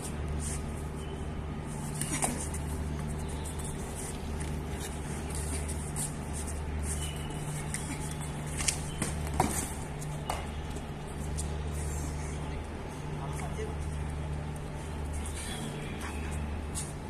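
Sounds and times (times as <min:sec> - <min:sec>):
low background hum: 0:00.0 - 0:17.0.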